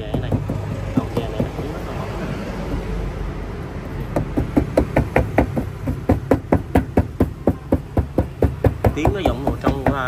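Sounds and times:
hand knocking on plastic: 0.0 - 1.8, 4.1 - 10.0.

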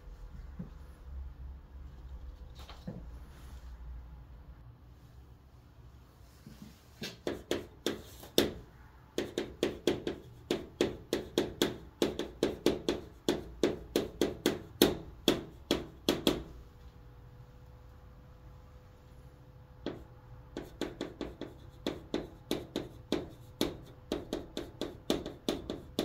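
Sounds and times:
chalk tapping and scratching on board: 6.4 - 8.6, 9.2 - 16.5, 19.8 - 26.0.

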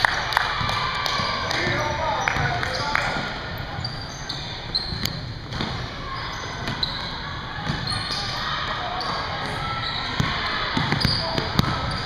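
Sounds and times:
sneaker squeaks: 1.1 - 12.0.

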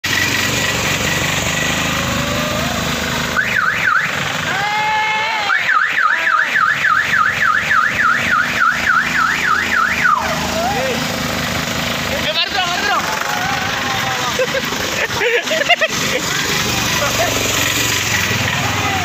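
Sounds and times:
vehicle engine noise: 0.0 - 19.0
vehicle alarm siren: 3.3 - 4.2, 5.3 - 10.9.

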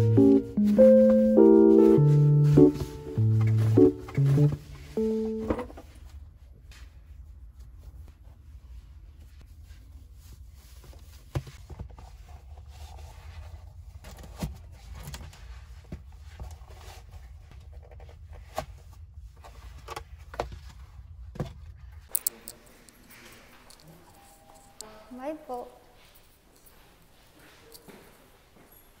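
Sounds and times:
small objects being handled: 22.1 - 24.9.

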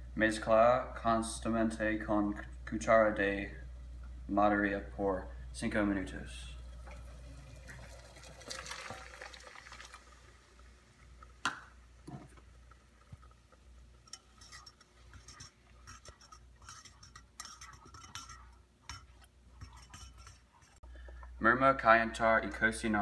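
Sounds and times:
milk pouring into saucepan: 6.6 - 20.4
whisk scraping metal pan: 14.0 - 20.8.

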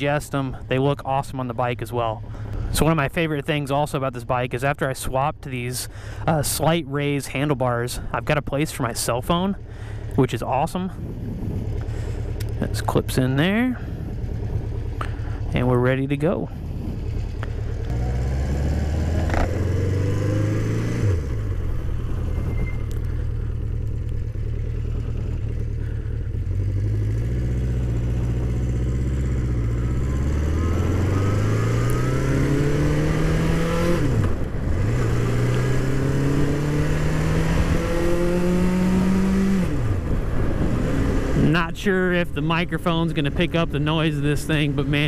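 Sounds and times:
motorcycle engine accelerating: 9.0 - 45.0.

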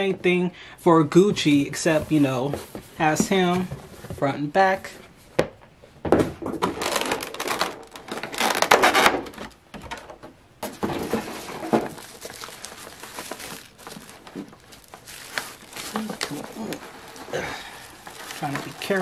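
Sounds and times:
plastic packaging crinkling: 6.6 - 9.6, 10.6 - 19.0.

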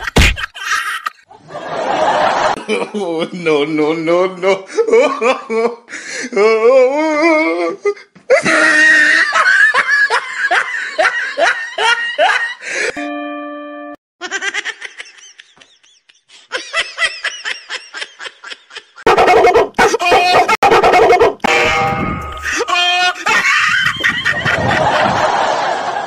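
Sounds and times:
laughter in rhythmic bursts: 0.0 - 3.1, 8.3 - 12.9, 14.2 - 19.1, 22.4 - 26.0
higher wavering laugh: 8.3 - 12.6, 22.4 - 26.0
steady tone: 21.4 - 23.4.

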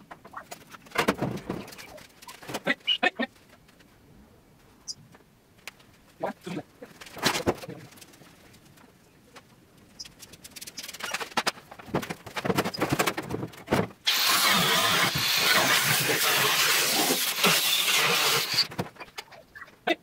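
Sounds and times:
grinder cutting sheet steel: 14.1 - 18.7.

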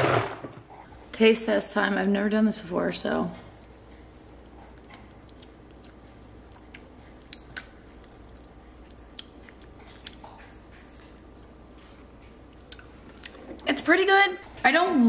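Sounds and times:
low room hum: 0.0 - 15.0
lip smacks and mouth clicks: 4.4 - 11.5, 12.4 - 13.4.

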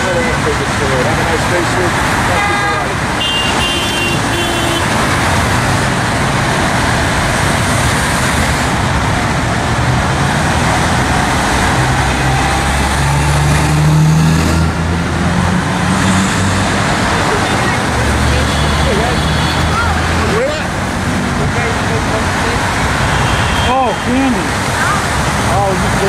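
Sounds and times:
heavy truck engine drone: 0.0 - 26.0
highway traffic rushing: 0.0 - 26.0.

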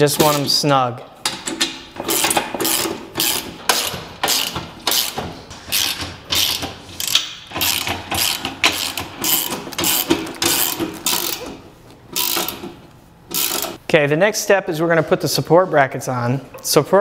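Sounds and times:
socket ratchet clicking: 1.6 - 11.5, 12.2 - 12.7, 13.3 - 13.8.

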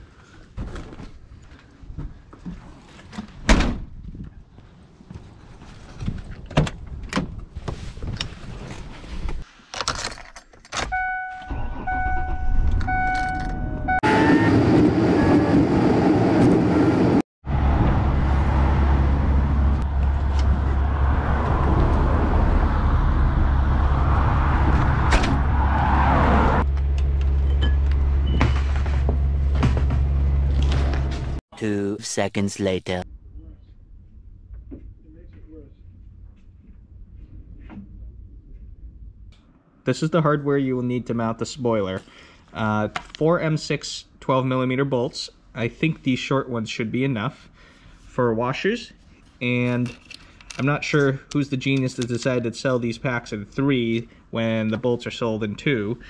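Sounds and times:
car warning chime dinging: 10.9 - 14.0
car engine and road drone: 11.5 - 31.4.

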